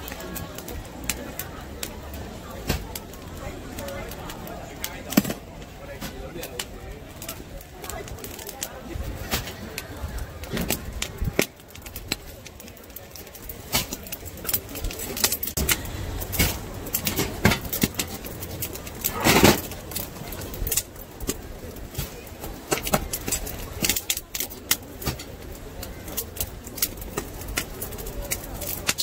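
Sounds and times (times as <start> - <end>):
chestnuts clicking and clattering: 6.2 - 29.0.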